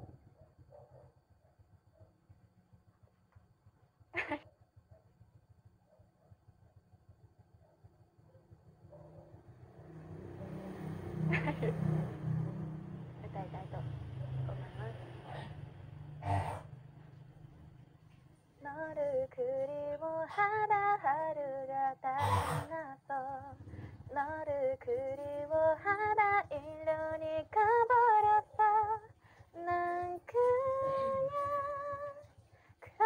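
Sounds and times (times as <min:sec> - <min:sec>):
woman singing unaccompanied: 0:18.6 - 0:33.0.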